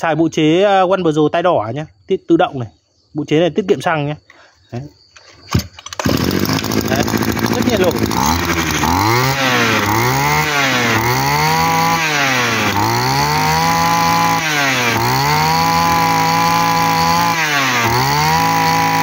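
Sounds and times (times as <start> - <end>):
brush cutter engine revving: 5.5 - 19.0.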